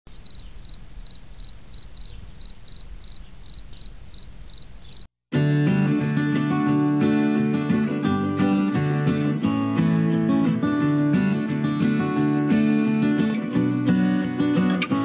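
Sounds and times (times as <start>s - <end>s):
cricket chirping: 0.1s - 5.1s
strummed acoustic guitar music: 5.3s - 15.0s.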